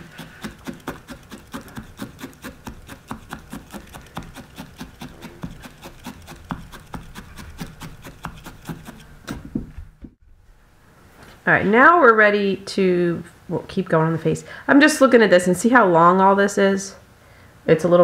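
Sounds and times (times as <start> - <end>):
felting needle punching wool: 0.0 - 10.2.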